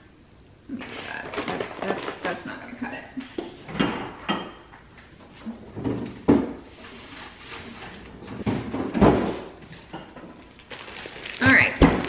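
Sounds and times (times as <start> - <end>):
fridge drawer opening and shutting: 5.4 - 9.9
items moved inside fridge: 5.4 - 12.0.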